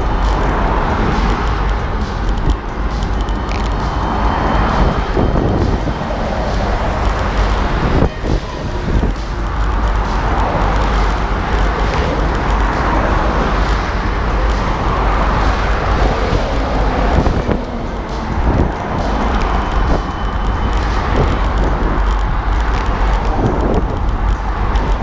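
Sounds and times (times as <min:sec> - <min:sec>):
highway traffic passing: 0:00.0 - 0:25.0
low rumble on microphone: 0:00.0 - 0:25.0.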